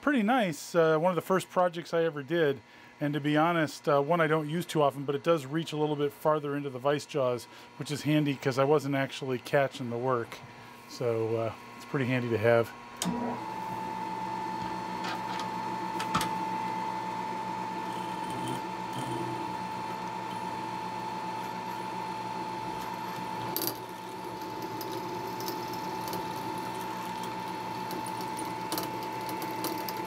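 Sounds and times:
milling machine drilling metal: 17.6s - 30.0s.

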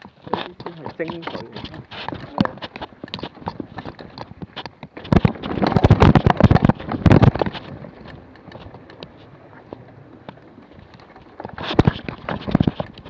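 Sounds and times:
bike clattering over rocks: 0.0s - 13.0s.

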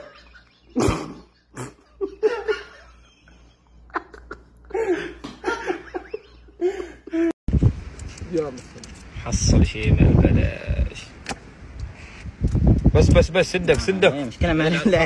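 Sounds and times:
people laughing: 0.0s - 7.1s.

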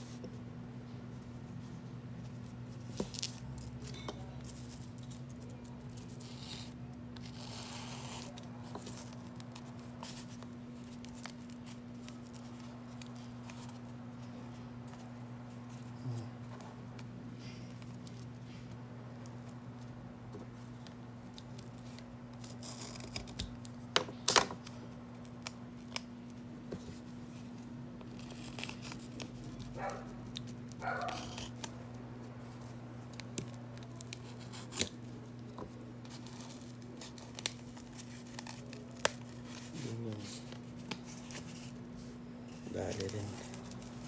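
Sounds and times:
steady low hum: 0.0s - 44.0s
paper rustling and tearing: 4.4s - 13.9s, 21.5s - 23.5s, 26.8s - 31.8s, 36.0s - 44.0s.

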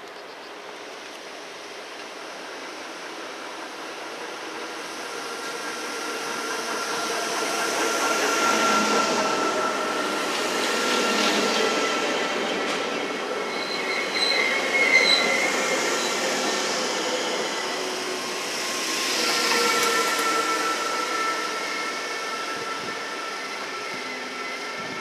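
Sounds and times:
steady train whine: 0.0s - 25.0s
wheel and brake squeals: 13.5s - 16.6s.

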